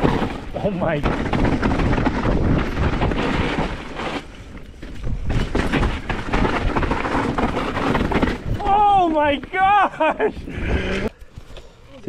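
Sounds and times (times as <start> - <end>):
wind noise on microphone: 1.1 - 4.1, 10.3 - 11.1.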